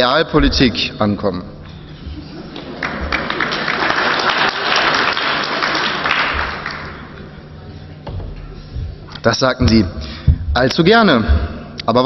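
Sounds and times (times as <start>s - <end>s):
audience applauding: 2.4s - 7.5s.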